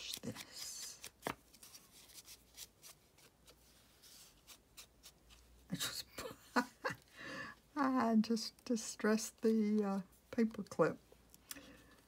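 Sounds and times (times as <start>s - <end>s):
paper rustling: 0.0s - 5.5s.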